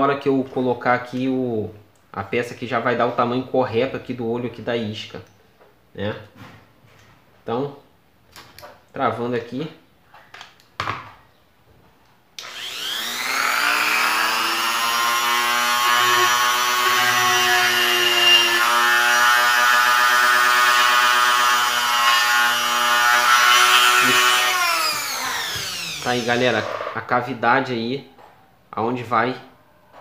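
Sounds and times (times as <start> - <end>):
rotary grinder whining: 12.4 - 27.0.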